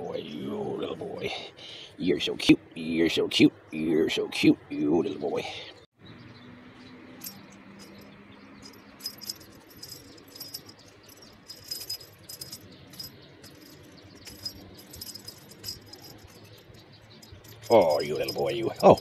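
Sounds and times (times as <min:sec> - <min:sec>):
small bell jingling: 0:07.2 - 0:19.0.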